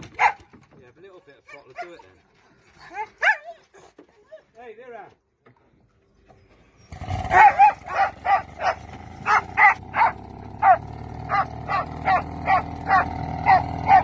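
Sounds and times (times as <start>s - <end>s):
dog barking: 0.1s - 0.5s, 3.0s - 3.5s, 7.2s - 14.0s.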